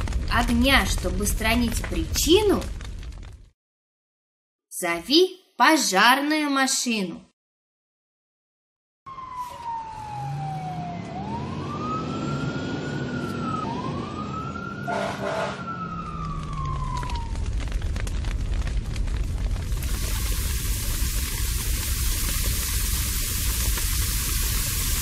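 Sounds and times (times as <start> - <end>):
crackling fire rumble: 0.0 - 3.6, 9.1 - 25.0
cartoon fire engine siren wailing: 9.1 - 17.7
short horn blast: 14.9 - 15.7.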